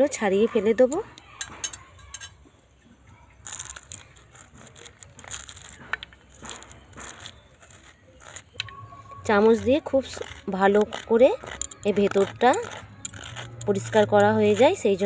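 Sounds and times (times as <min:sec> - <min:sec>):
crunchy scraping of papaya seeds: 0:03.3 - 0:15.0.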